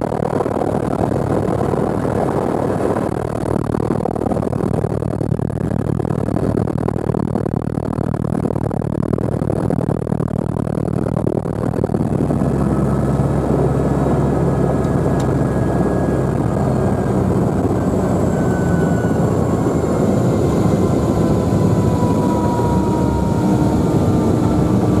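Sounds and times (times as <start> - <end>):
helicopter rotor and engine: 0.0 - 25.0
thin falling whines: 11.8 - 25.0.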